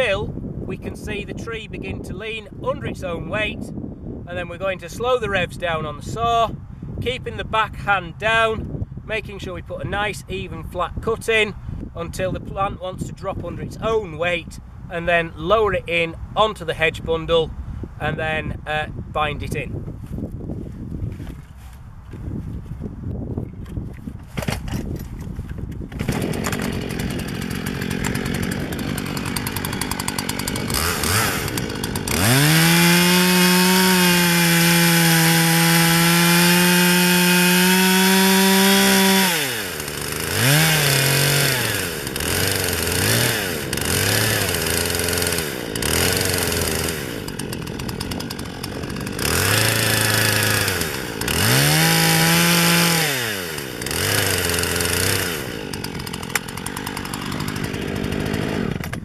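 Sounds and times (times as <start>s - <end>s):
chainsaw revving: 25.9s - 59.0s.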